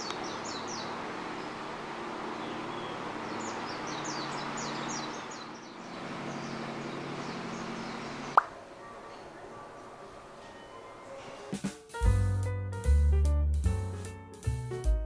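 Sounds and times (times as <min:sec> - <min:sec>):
bird chirping: 0:00.0 - 0:01.7, 0:02.3 - 0:11.2
wind: 0:00.0 - 0:11.6.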